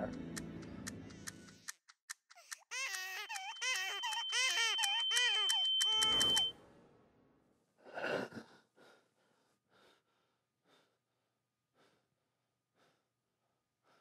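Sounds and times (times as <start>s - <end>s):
man breathing heavily: 7.8s - 14.0s.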